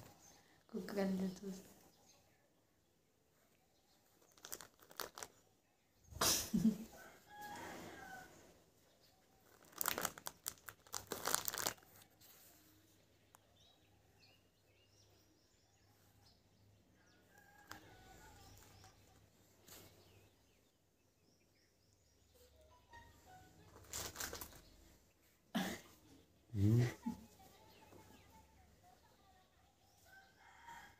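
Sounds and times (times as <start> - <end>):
plastic packet crinkling: 4.2 - 5.4, 9.4 - 12.1, 23.6 - 24.7.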